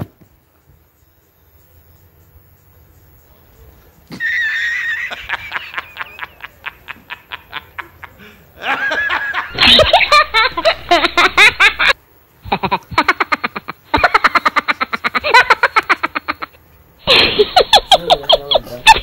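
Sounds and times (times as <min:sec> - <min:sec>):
high-pitched giggling: 0:04.2 - 0:19.0.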